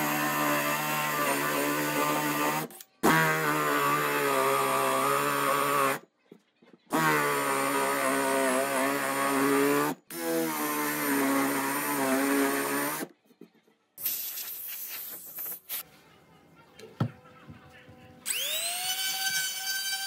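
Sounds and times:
power drill whining into wood: 0:00.0 - 0:06.0, 0:06.9 - 0:13.1, 0:18.3 - 0:20.0.

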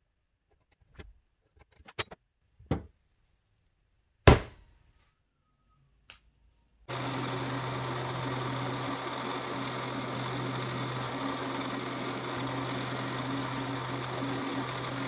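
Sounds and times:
drill press motor humming: 0:06.9 - 0:15.0.

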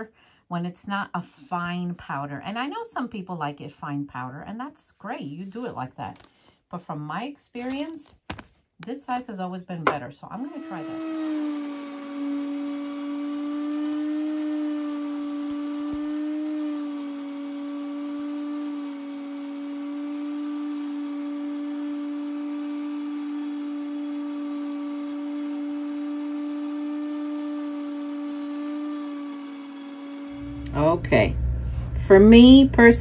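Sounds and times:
grain mill motor whine: 0:09.9 - 0:32.9
rushing of material being milled: 0:10.4 - 0:30.6.

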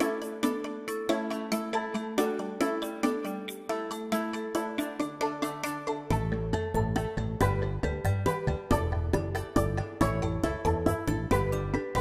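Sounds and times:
pitched notes over bass line: 0:06.1 - 0:12.0.

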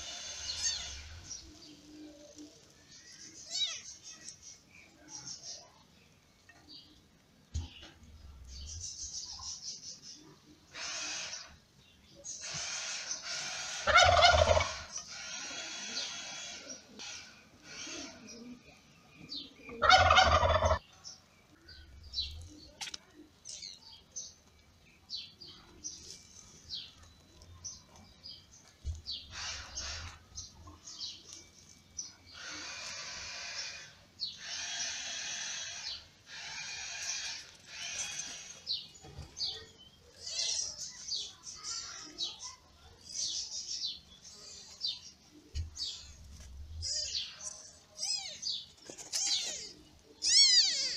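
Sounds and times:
kittens mewing: 0:00.4 - 0:01.2, 0:47.9 - 0:50.9.

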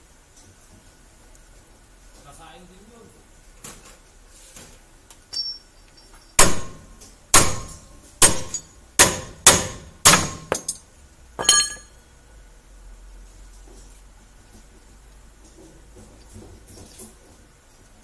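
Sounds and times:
hammer striking metal: 0:06.4 - 0:10.8, 0:11.4 - 0:12.0.

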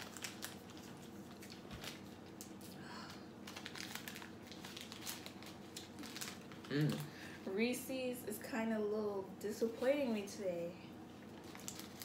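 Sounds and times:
plastic wrappers crinkling: 0:00.0 - 0:07.2, 0:11.3 - 0:12.0.

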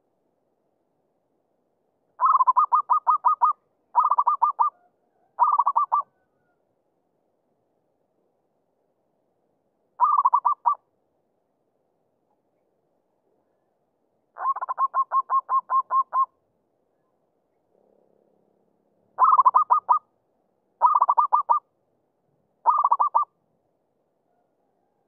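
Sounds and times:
dove cooing: 0:02.2 - 0:06.2, 0:10.0 - 0:10.8, 0:14.4 - 0:16.3, 0:19.2 - 0:20.0, 0:20.8 - 0:21.6, 0:22.6 - 0:23.3.

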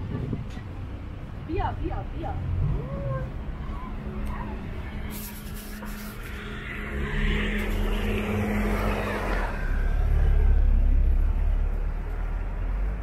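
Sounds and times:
car engine rumble: 0:00.0 - 0:13.0.

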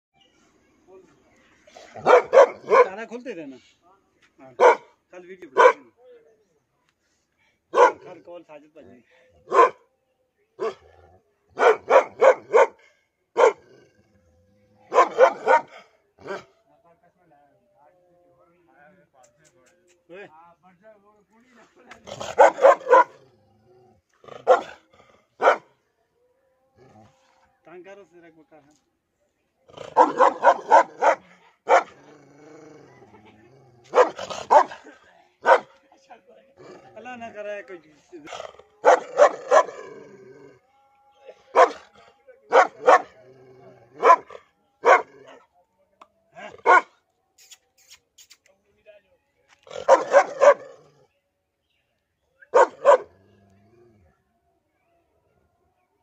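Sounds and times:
large dog barking: 0:01.8 - 0:03.1, 0:04.5 - 0:06.0, 0:07.7 - 0:08.3, 0:09.4 - 0:09.9, 0:10.6 - 0:14.0, 0:14.8 - 0:16.5, 0:21.9 - 0:23.5, 0:24.2 - 0:25.8, 0:29.7 - 0:35.8, 0:38.2 - 0:40.4, 0:41.3 - 0:45.5, 0:46.3 - 0:47.0, 0:49.6 - 0:51.1, 0:52.4 - 0:54.2.

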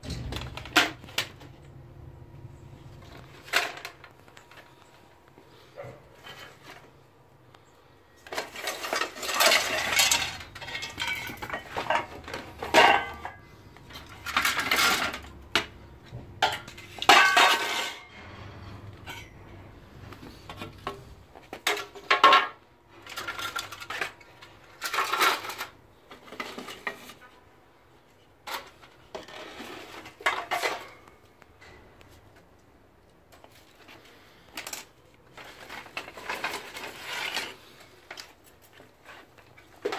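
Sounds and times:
junk clattering in plastic crate: 0:00.0 - 0:01.6, 0:03.0 - 0:04.8, 0:08.2 - 0:18.3, 0:20.3 - 0:27.3, 0:28.4 - 0:31.8, 0:33.4 - 0:39.9.

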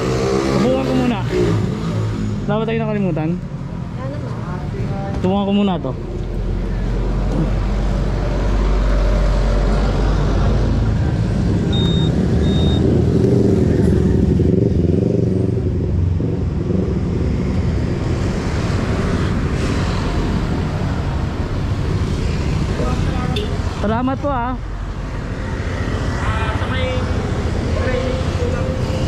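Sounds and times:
vehicle engines rumbling: 0:00.0 - 0:29.0
short high beeps: 0:11.7 - 0:12.9.

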